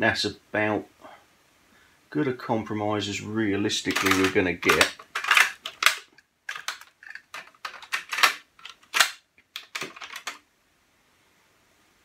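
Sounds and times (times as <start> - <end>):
cassette deck plastic clicks: 3.9 - 10.4.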